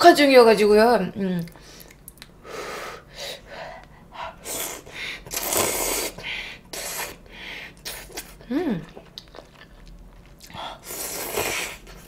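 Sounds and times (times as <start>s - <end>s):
slurping noodles: 4.4s - 7.2s, 10.7s - 12.0s
breaths: 7.2s - 7.8s.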